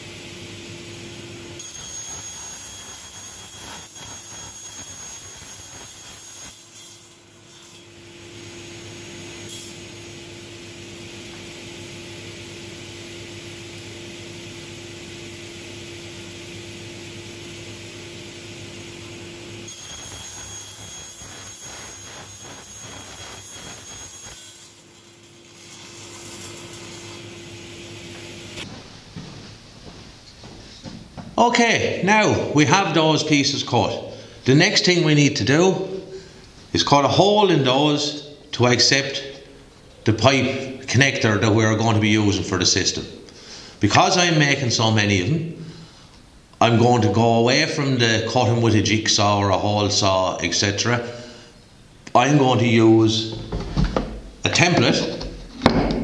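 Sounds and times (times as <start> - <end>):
panel saw running: 0.6 - 28.7
saw whining through board: 1.6 - 10.8, 19.0 - 28.7.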